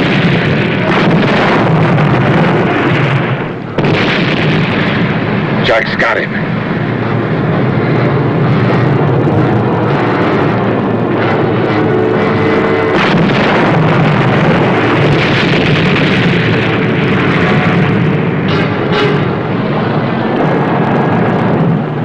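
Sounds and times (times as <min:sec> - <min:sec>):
gunfire: 0:00.0 - 0:06.3, 0:12.9 - 0:19.8
explosions: 0:00.0 - 0:22.0.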